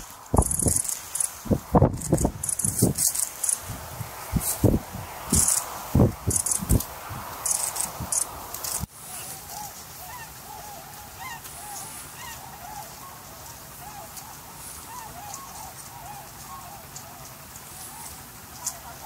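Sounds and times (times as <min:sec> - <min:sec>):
waterbirds honking: 0:09.1 - 0:19.0.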